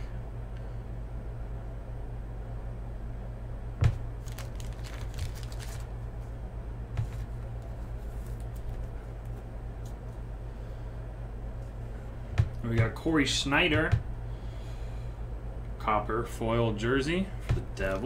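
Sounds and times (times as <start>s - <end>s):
low steady hum: 0.0s - 18.0s
trading card clicks and rustles: 4.2s - 5.9s, 7.0s - 10.2s, 17.8s - 18.0s.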